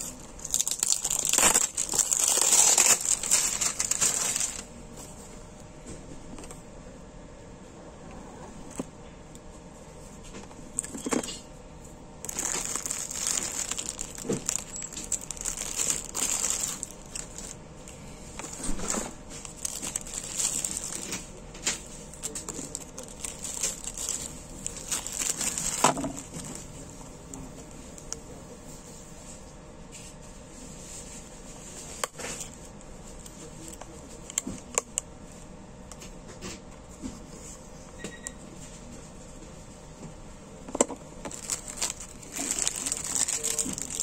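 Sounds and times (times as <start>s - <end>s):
plastic wrapping crinkling: 0.0s - 4.7s, 12.2s - 27.4s, 41.2s - 44.0s.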